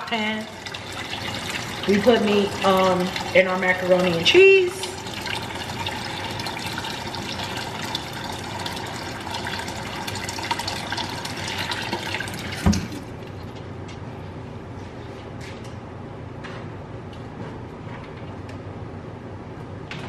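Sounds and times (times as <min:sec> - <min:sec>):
tap running water into pot: 0:00.1 - 0:13.1.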